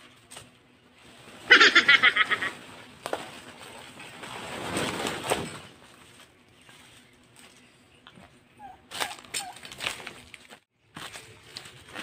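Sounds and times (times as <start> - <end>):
leaves rustling and tearing: 0.0 - 7.7, 8.9 - 12.0.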